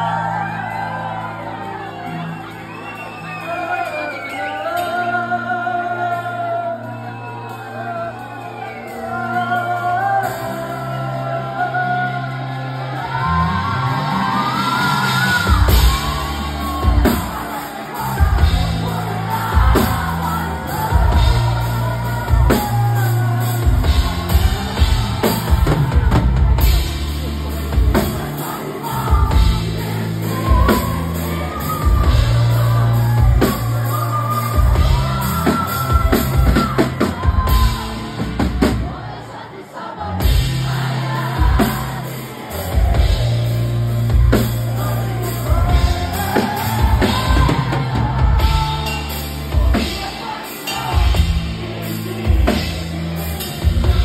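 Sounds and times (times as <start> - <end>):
person singing into a microphone: 0.0 - 54.0
drum kit: 12.5 - 54.0.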